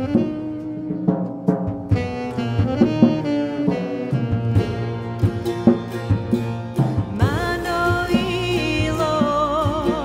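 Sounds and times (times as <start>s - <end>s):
alto saxophone melody: 0.0s - 10.0s
double bass: 0.0s - 10.0s
drums struck with soft mallets: 0.0s - 10.0s.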